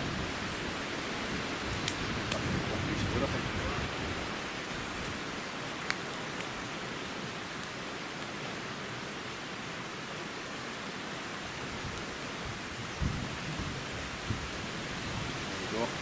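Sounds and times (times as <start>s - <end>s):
campfire rushing hiss: 0.0s - 16.0s
campfire sharp clicks: 1.8s - 8.4s.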